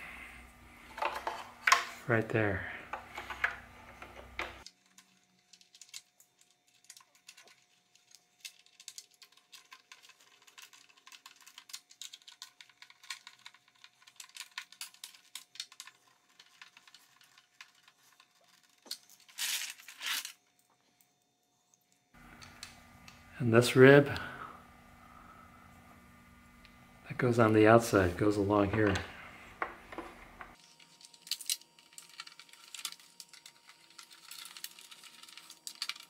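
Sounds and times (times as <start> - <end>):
plastic rustle: 4.6 - 20.4, 30.5 - 36.0.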